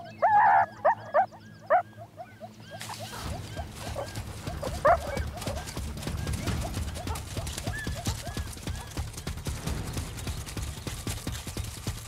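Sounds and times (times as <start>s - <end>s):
meerkat alarm calls: 0.0s - 9.4s.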